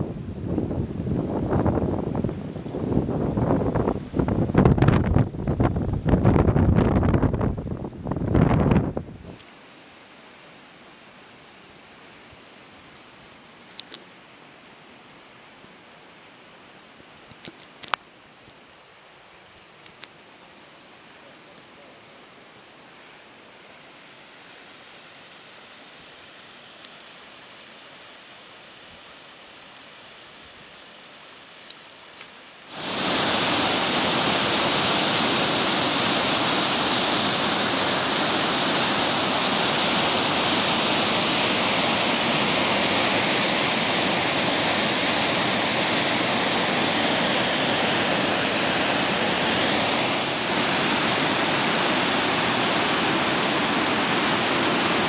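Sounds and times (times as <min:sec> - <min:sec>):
faint hiss: 0:00.0 - 0:55.0
waterfall rushing: 0:32.3 - 0:55.0.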